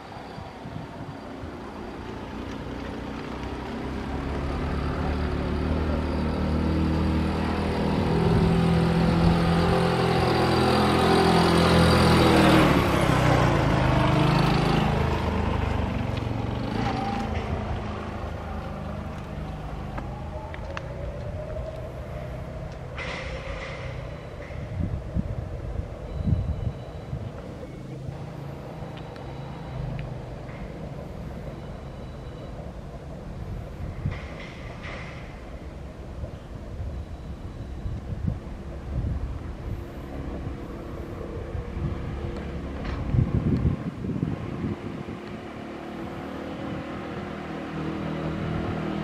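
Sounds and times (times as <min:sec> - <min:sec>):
distant metro train rumble: 0:00.0 - 0:49.0
vehicle passing by: 0:01.3 - 0:26.2, 0:38.5 - 0:49.0
wind buffeting microphone: 0:17.3 - 0:27.7, 0:33.0 - 0:49.0.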